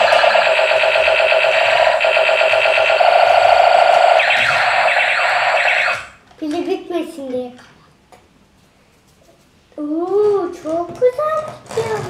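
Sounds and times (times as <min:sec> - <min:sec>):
laser-like sweeps: 0:00.0 - 0:06.1
toy robot warbling beeps: 0:00.0 - 0:06.1.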